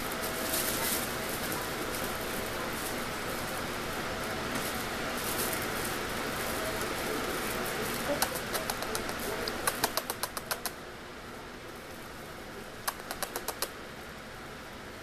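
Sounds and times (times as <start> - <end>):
puppies rustling on fabric tunnel: 0.0 - 9.4
sharp clicks and taps: 8.2 - 10.8, 12.9 - 13.7.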